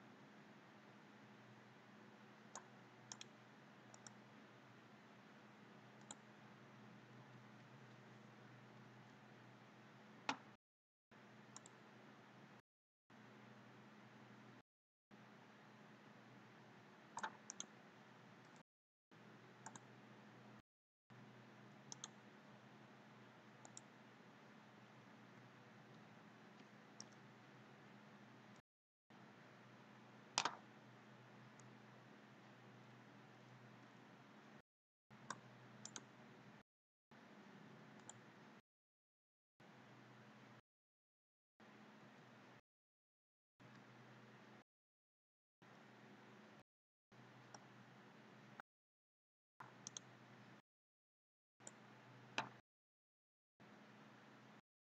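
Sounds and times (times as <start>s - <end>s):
computer mouse clicks: 2.5s - 4.2s, 6.0s - 6.2s, 10.2s - 10.6s, 11.5s - 11.8s, 17.1s - 17.8s, 19.6s - 19.9s, 21.9s - 22.2s, 23.6s - 23.9s, 26.6s - 27.2s, 30.4s - 30.7s, 35.2s - 36.1s, 38.0s - 38.2s, 49.6s - 50.1s, 52.4s - 52.6s.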